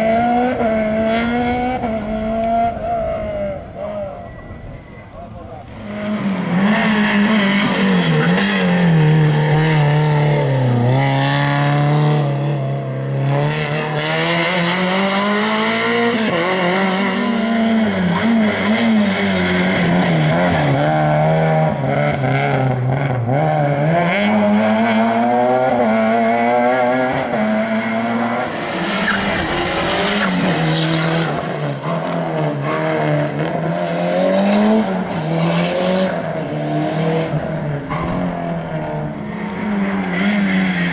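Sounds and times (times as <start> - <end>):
rally car engines revving: 0.0 - 40.9.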